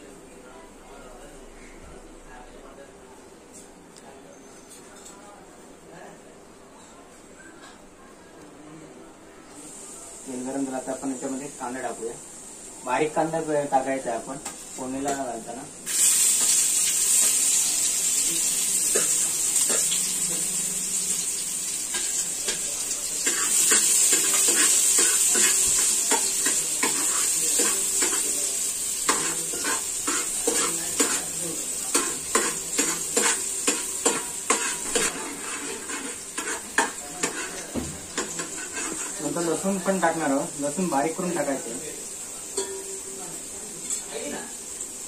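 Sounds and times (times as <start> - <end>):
onion sizzling in oil: 9.7 - 45.0
spoon tapping and scraping pot: 23.2 - 28.2, 29.1 - 31.2, 31.9 - 39.2.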